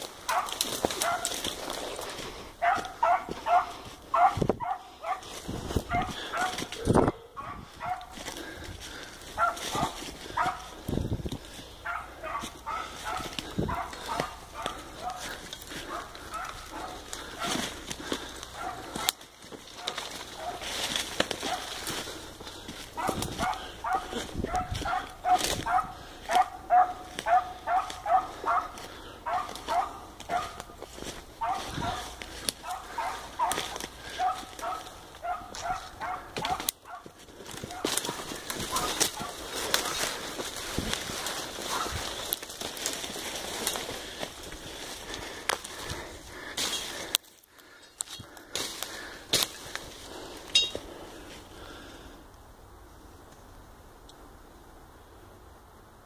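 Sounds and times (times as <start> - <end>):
footsteps crunching dry leaves: 0.0 - 51.9
dog barking: 0.2 - 1.5, 2.6 - 8.2, 9.3 - 10.8, 11.8 - 17.7, 18.5 - 19.2, 19.8 - 20.7, 21.3 - 21.8, 22.9 - 30.8, 31.4 - 40.1, 41.6 - 42.0.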